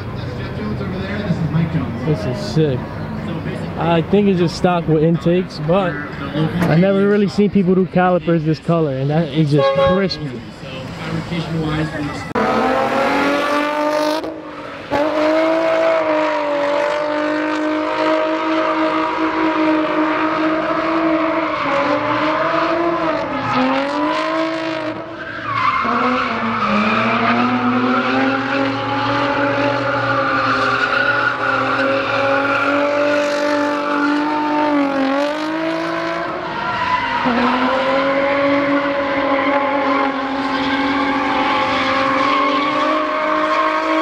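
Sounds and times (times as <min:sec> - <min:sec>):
car engine revving: 0:09.0 - 0:44.0
tyres squealing: 0:25.0 - 0:33.1, 0:36.3 - 0:44.0.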